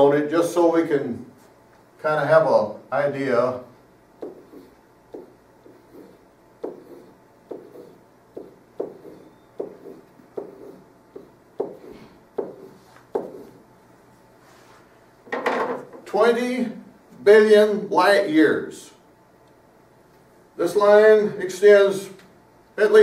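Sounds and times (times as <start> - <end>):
pen writing on a whiteboard: 4.2 - 13.6.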